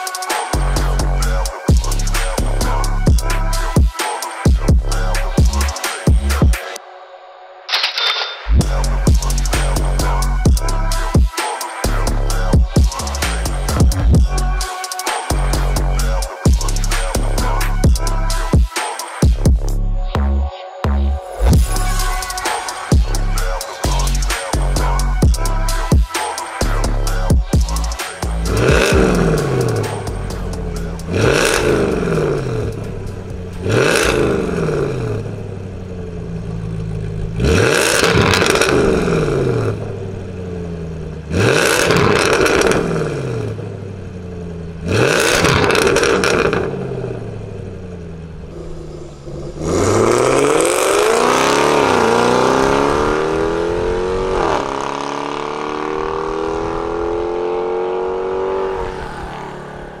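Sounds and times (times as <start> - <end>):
engine rev blips through exhaust: 26.6 - 60.0.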